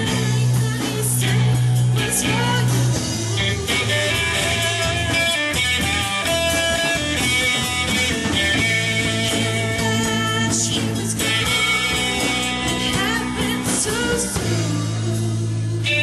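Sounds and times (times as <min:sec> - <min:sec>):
person singing: 0:00.0 - 0:05.4, 0:09.0 - 0:16.0
rock band playing blues-rock: 0:00.0 - 0:16.0.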